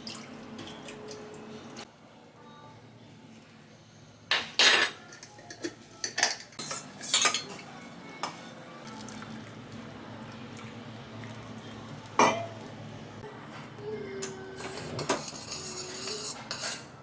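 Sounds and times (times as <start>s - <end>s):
metal spoon clinking on glass: 4.6s - 7.6s.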